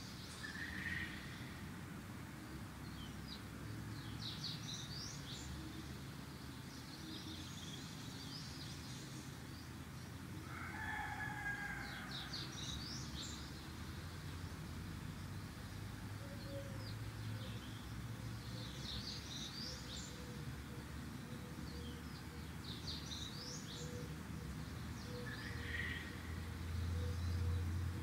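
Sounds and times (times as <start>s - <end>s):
rooster crowing: 10.4s - 12.4s.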